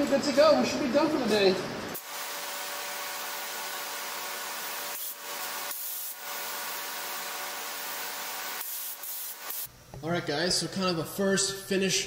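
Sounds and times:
spray gun hissing: 2.0 - 9.7.

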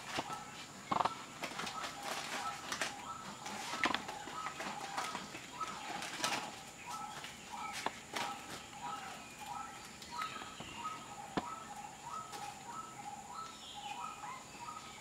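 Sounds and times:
kittens scuffling on plastic sack: 1.4 - 8.7.

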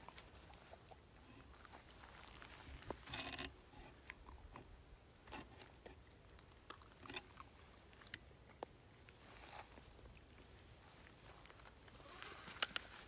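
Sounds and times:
crunching rustle of forest litter: 0.0 - 4.1, 7.2 - 13.0
twigs crunching underfoot: 1.6 - 4.2.

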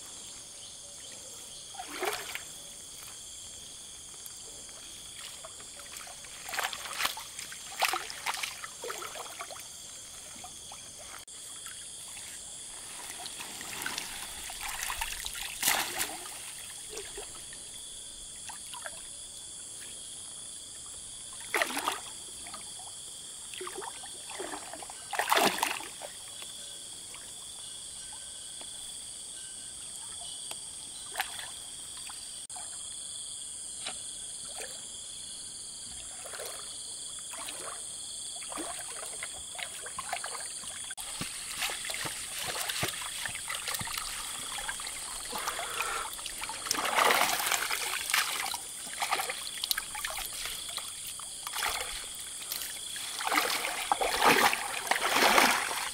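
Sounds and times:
high insect drone: 0.0 - 55.9
water splashing and trickling: 1.7 - 3.2, 4.1 - 19.1, 20.8 - 26.4, 35.8 - 55.9.

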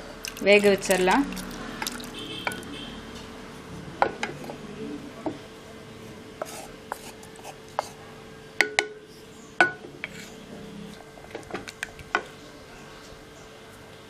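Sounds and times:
wooden spatula knocking on pans: 8.6 - 9.0.

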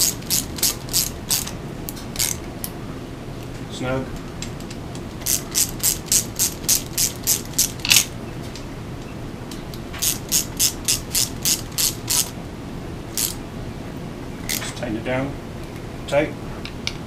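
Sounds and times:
ratchet clicking: 0.0 - 1.6, 2.2 - 2.4, 5.2 - 8.1, 10.0 - 12.3, 13.1 - 13.4.

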